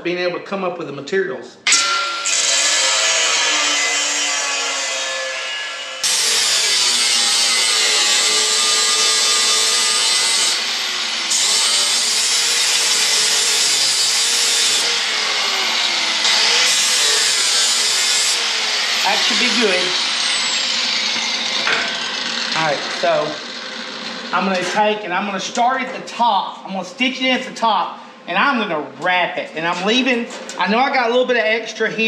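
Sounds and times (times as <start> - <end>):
power tool whining on steel: 1.7 - 24.4.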